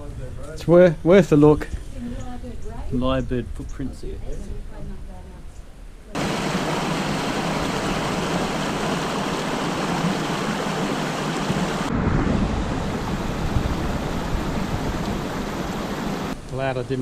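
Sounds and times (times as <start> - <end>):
water rushing over rocks: 6.2 - 16.4.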